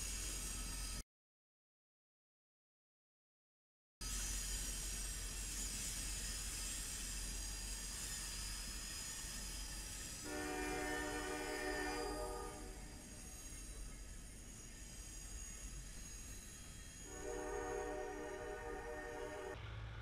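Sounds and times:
freight train rolling past: 4.0s - 20.0s
locomotive air horn: 10.2s - 12.9s, 17.1s - 19.6s
thin high whine: 10.2s - 19.6s.

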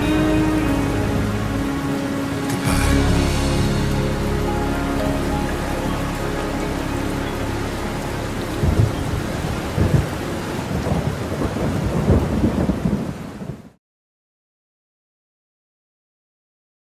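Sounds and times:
steady rain: 0.0s - 13.8s
low rolling thunder: 8.6s - 13.7s.

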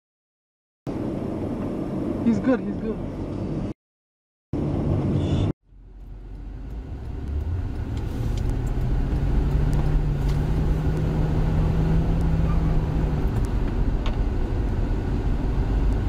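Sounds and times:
car engine and road noise: 0.9s - 3.8s, 4.5s - 16.0s.

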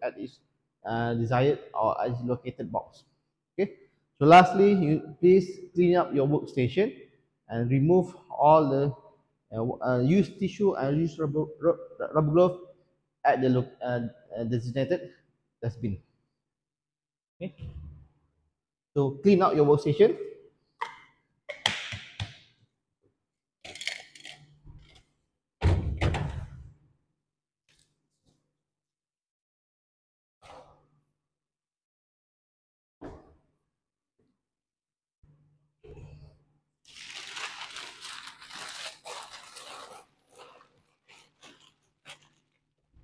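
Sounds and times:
newspaper rustling and crumpling: 36.9s - 43.0s.

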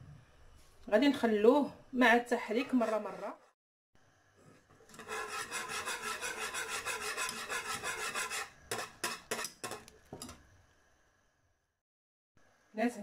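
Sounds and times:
wire whisk stirring in a pot: 4.8s - 10.4s.

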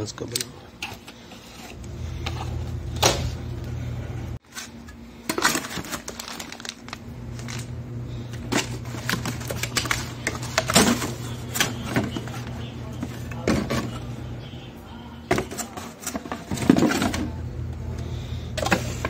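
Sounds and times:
packaging clicks and rustles: 4.5s - 7.7s, 8.3s - 13.9s.

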